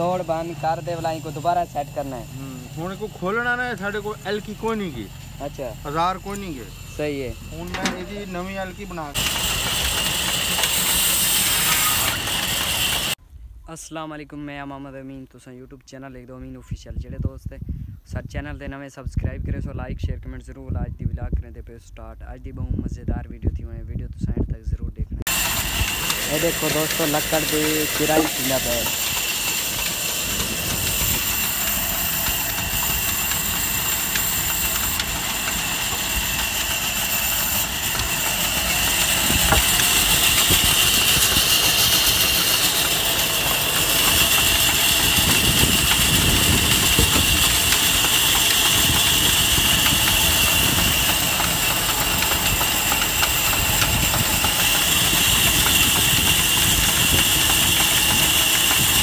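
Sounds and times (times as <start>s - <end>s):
band saw and engine running: 0.0s - 13.2s, 25.3s - 59.0s.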